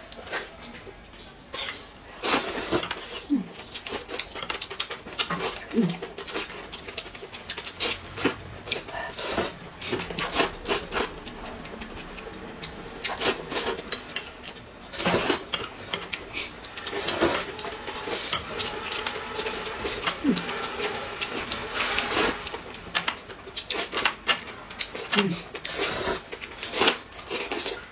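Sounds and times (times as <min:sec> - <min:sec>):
noodles slurped: 0:14.9 - 0:27.9.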